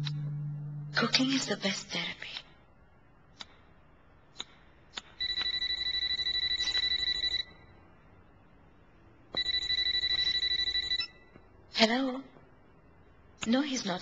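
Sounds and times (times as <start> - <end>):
telephone ringing: 9.4 - 11.2.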